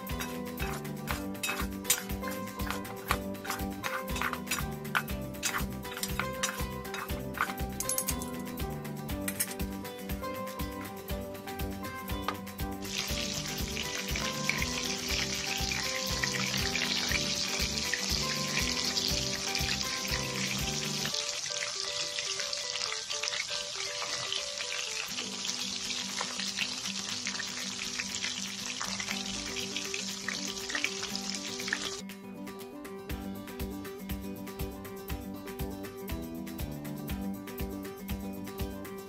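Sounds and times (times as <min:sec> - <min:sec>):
background music with steady beat: 0:00.0 - 0:39.0
mushrooms deep-frying in oil: 0:12.8 - 0:32.0.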